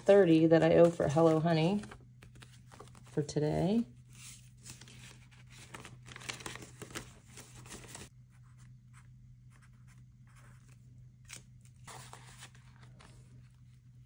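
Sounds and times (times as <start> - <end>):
banknotes and binder pockets rustling: 0.0 - 3.2, 4.1 - 8.1.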